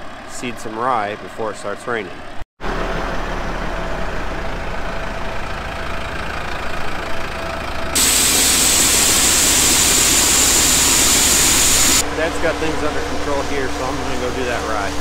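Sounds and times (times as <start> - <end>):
diesel truck idling: 2.2 - 15.0.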